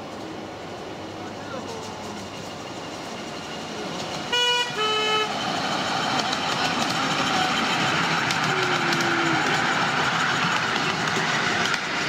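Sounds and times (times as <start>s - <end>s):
train wheels on rails: 0.0s - 12.0s
train horn two notes: 4.3s - 5.3s.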